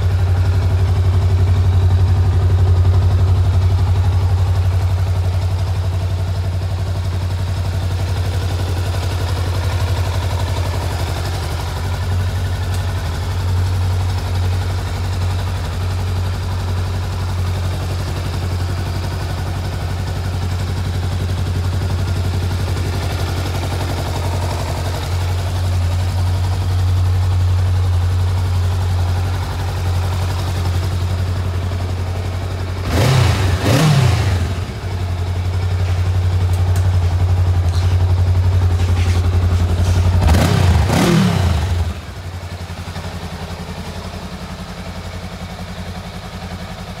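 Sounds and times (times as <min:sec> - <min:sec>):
motorcycle engine idling: 0:00.0 - 0:47.0
engine revving: 0:32.8 - 0:34.8, 0:38.9 - 0:42.1.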